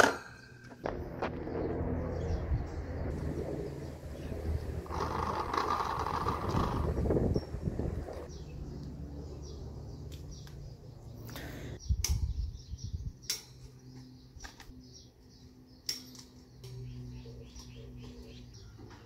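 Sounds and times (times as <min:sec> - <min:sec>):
low steady hum: 0:00.0 - 0:06.1.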